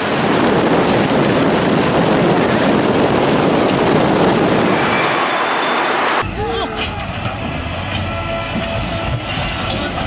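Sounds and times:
strong wind buffeting microphone: 0.0 - 6.2.

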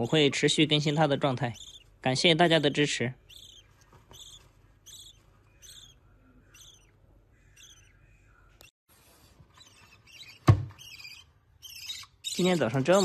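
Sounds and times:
bird chick cheeping: 1.5 - 1.8, 3.3 - 6.9.

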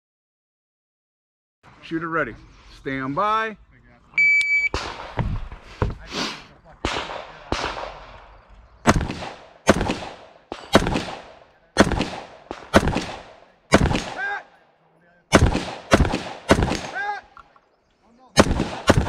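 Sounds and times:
rifle gunshots: 4.7 - 6.1, 6.7 - 14.5, 15.3 - 17.2, 18.3 - 19.0.

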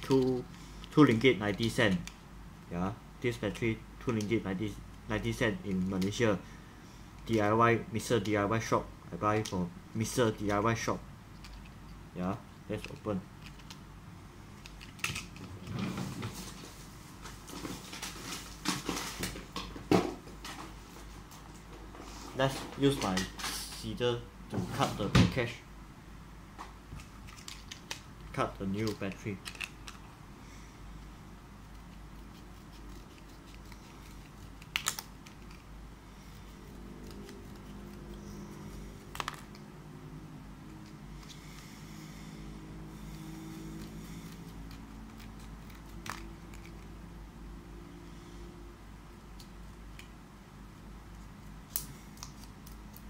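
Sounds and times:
plastic and card rustling: 14.7 - 19.6, 27.0 - 30.1, 31.8 - 35.7, 36.4 - 39.6, 43.1 - 47.0
scissors snipping plastic: 32.3 - 35.7.

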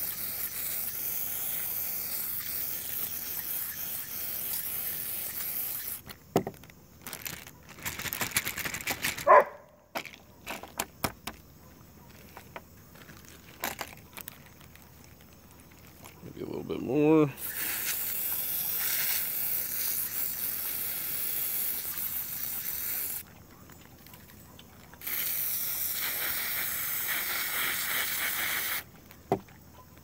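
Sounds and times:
aerosol can spraying hiss: 0.0 - 6.0, 17.4 - 23.2, 25.0 - 28.9
plastic bag crinkling: 5.8 - 10.8, 12.9 - 16.3.

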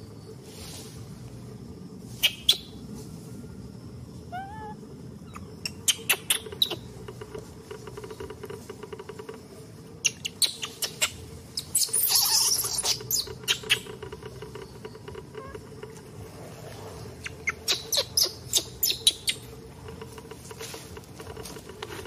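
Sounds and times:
high squeaks or chirps: 5.3 - 6.9, 10.0 - 15.7, 17.2 - 19.5.

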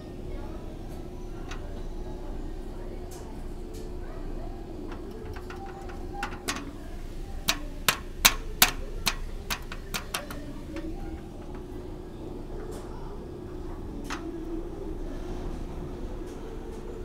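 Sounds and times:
steady low hum: 0.0 - 17.0
sharp taps of small hard object: 4.9 - 6.7, 7.5 - 11.6.

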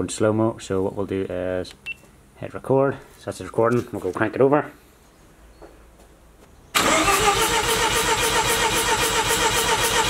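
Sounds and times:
engine cranking on starter: 6.8 - 10.0.

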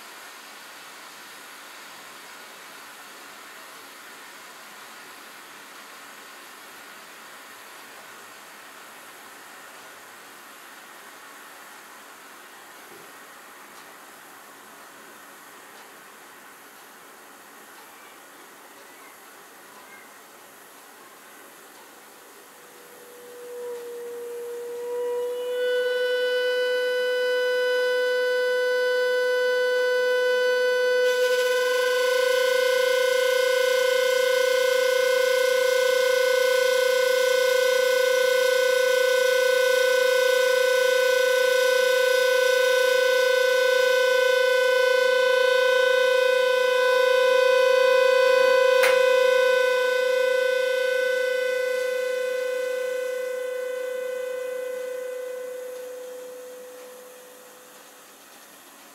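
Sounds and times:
kettle whistling: 22.0 - 58.1.

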